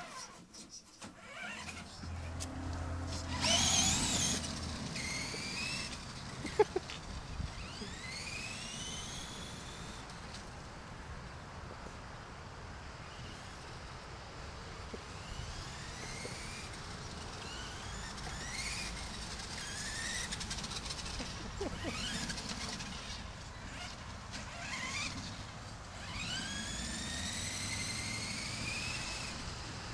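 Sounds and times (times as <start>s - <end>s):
electric toy motor whining: 1.1s - 10.1s, 15.1s - 29.8s
low rumble: 2.0s - 5.0s.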